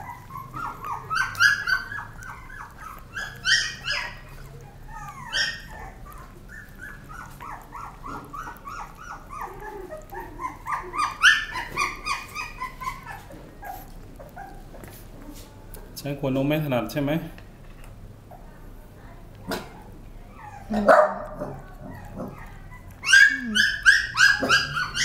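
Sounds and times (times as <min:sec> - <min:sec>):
puppy yelps: 0:00.0 - 0:14.6, 0:20.3 - 0:25.0
puppy whining: 0:00.0 - 0:15.5, 0:19.4 - 0:25.0.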